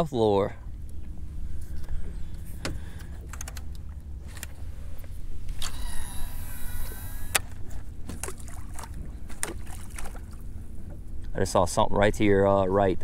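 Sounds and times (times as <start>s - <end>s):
reel clicks: 1.7s - 7.6s
fishing reel spool whirring: 5.5s - 7.7s.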